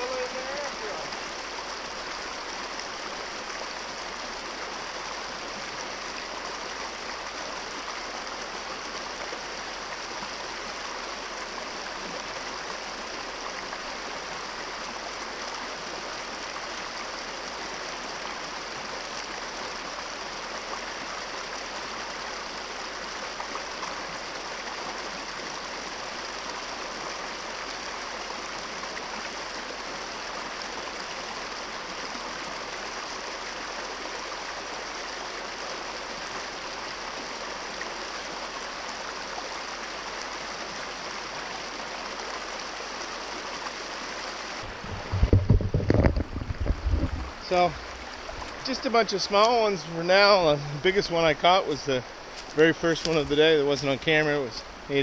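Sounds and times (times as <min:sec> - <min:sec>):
brook rushing over rocks: 0:44.5 - 0:55.0.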